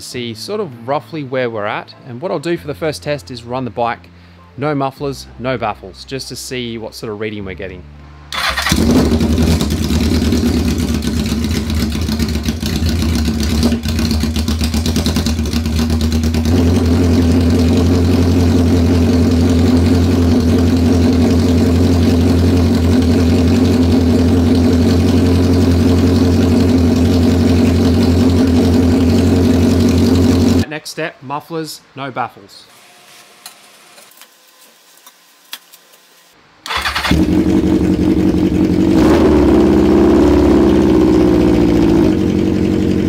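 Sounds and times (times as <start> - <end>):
motorcycle engine idling loudly: 8.4 - 30.6, 37.0 - 43.0.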